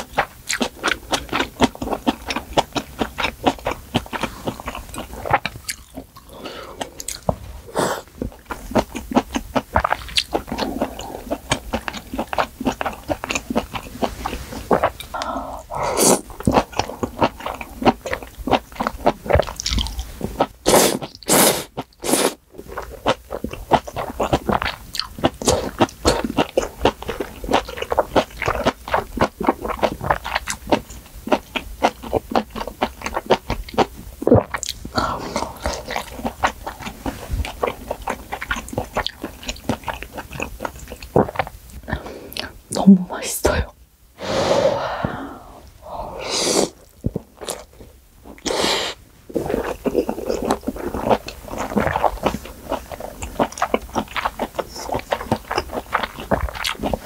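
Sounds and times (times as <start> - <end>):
wet chewing with mouth clicks: 0.0 - 42.9, 46.7 - 57.0
slurping noodles: 20.6 - 22.8, 44.2 - 47.6, 48.3 - 57.0.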